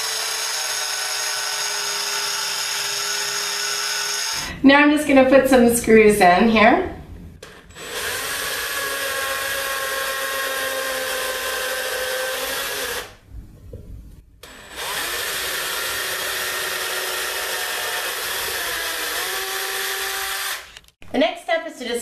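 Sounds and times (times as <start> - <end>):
cordless drill into wood: 0.0 - 4.5, 7.4 - 13.2, 14.4 - 20.9.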